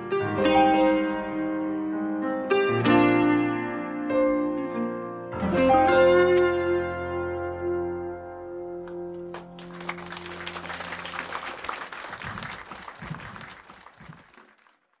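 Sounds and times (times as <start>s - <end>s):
audience applause: 9.3s - 15.0s.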